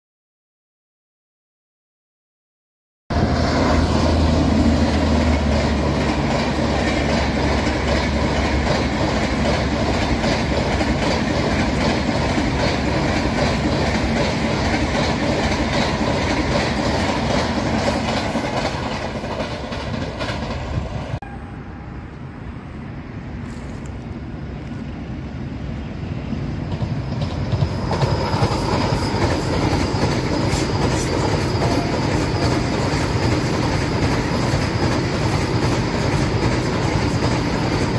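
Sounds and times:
train passing: 3.1 - 37.9
train rumbling over viaduct: 3.1 - 37.9
wheels clacking on rail joints: 4.3 - 21.2, 26.7 - 37.9.

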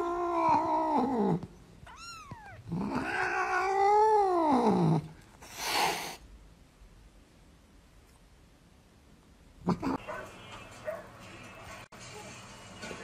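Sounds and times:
cat mewing: 0.0 - 5.0
cat yowling: 0.0 - 5.0.

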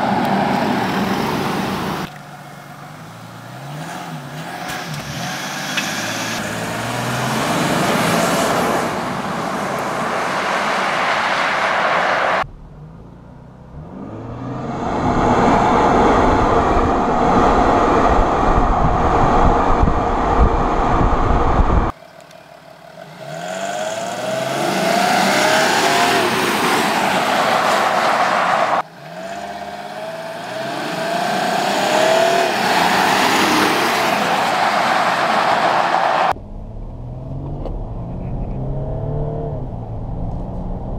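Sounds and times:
diesel engine accelerating: 0.0 - 40.9
road rumble: 0.0 - 40.9
wind on microphone: 14.6 - 21.9.

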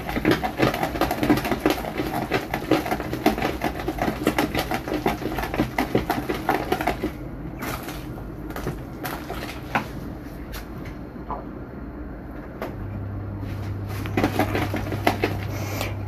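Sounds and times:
spatula stirring wet batter: 0.0 - 7.1.

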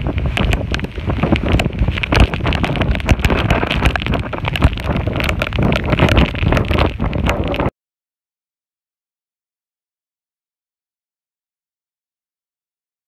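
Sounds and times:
water rushing: 0.0 - 7.7
wind buffeting microphone: 0.0 - 7.7.

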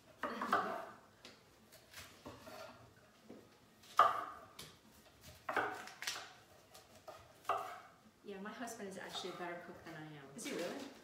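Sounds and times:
knife chopping on wooden board: 3.9 - 7.9.

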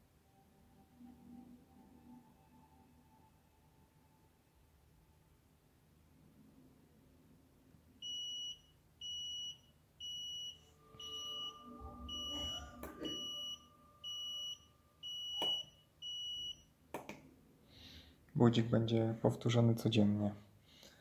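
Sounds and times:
alarm clock beeping: 8.0 - 16.7.

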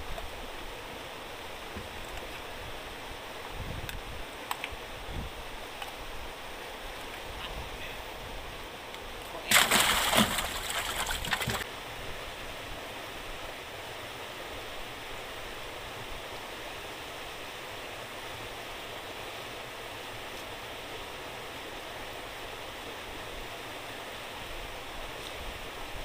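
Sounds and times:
water rushing out of outlet: 9.4 - 11.7
fish thrashing and splashing: 9.5 - 11.6.

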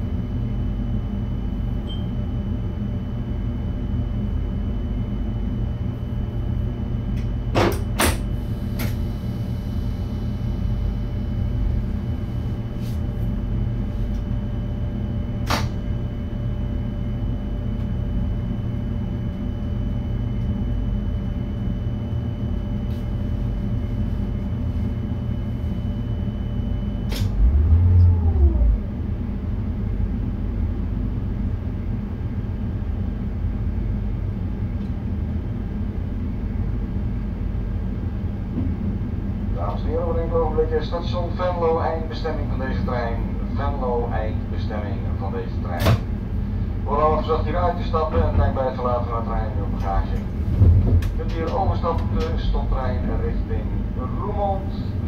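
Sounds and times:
electric train rumbling: 0.0 - 1.2, 3.5 - 55.0
faint steady whine: 8.2 - 55.0
low thump: 50.5 - 51.2.

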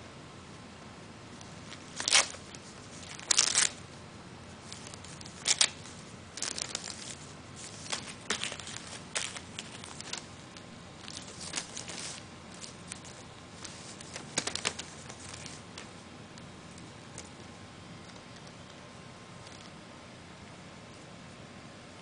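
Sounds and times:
wrapping paper crinkling and ripping: 1.6 - 3.8, 4.6 - 16.0.

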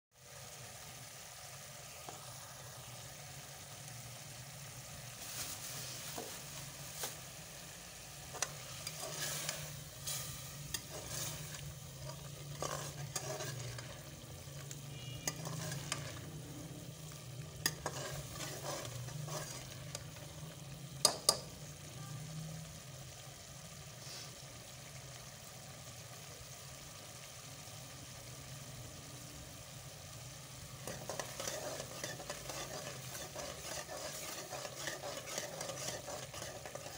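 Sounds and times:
curry bubbling in a pressure cooker: 0.1 - 36.9
ladle scraping and clinking on pot: 8.3 - 16.3, 17.6 - 20.2, 30.8 - 36.9.

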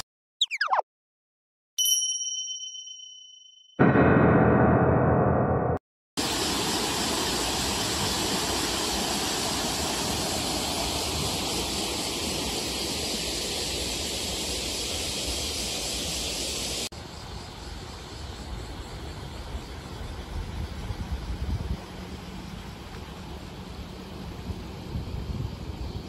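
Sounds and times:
water rushing over a weir: 6.2 - 16.9.

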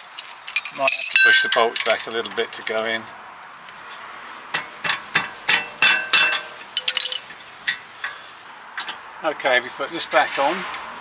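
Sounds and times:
metallic clinks: 0.4 - 2.0, 5.5 - 8.2.

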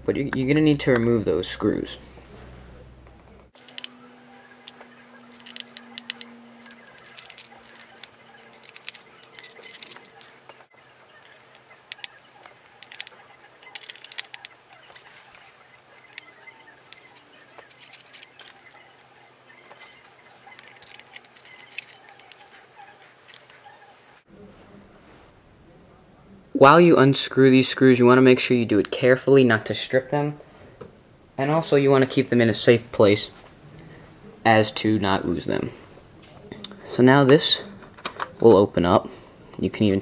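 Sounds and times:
screwdriver clicking on screws: 3.6 - 10.3.

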